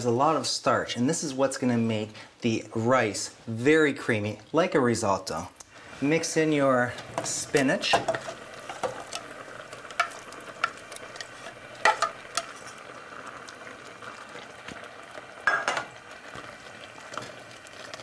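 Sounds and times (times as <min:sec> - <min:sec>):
sizzling hiss: 0:05.4 - 0:18.0
spoon stirring rice: 0:09.9 - 0:13.4
metal spoon scraping a pan: 0:10.0 - 0:12.8.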